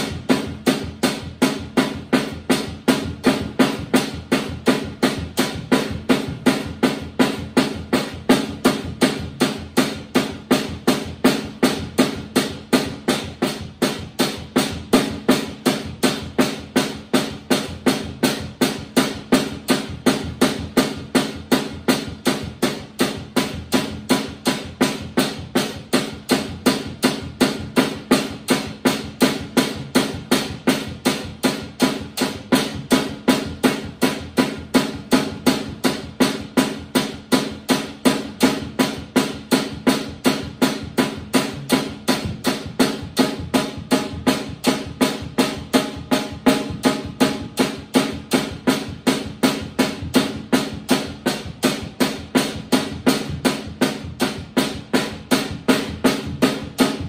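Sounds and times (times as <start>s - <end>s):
drum kit steady beat: 0.0s - 57.0s.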